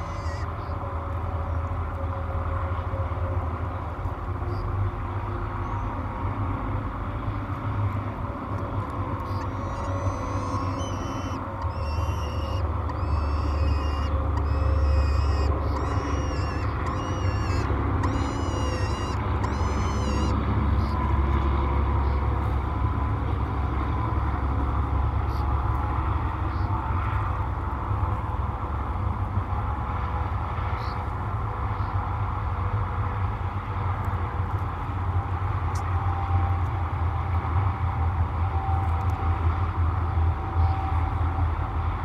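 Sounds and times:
faint steady hum: 0.0s - 42.0s.

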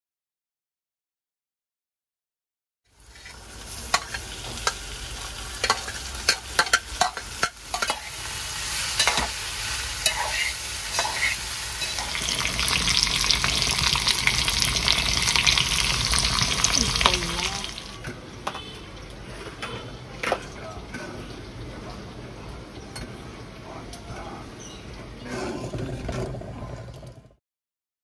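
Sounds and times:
frying sizzle: 2.9s - 24.2s
spoon scraping steel pan: 8.9s - 9.4s, 10.0s - 12.2s.

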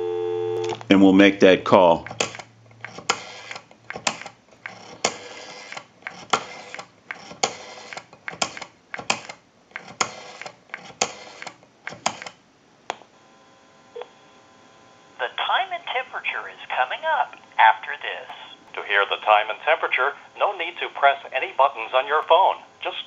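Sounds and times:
rotary phone dial clicking: 2.0s - 12.4s.

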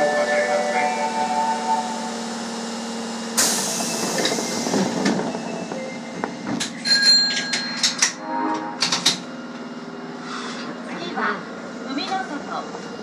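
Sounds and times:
low train hum: 0.0s - 13.0s
train clicks and clanks: 3.4s - 8.2s, 8.8s - 9.3s, 10.6s - 13.0s.

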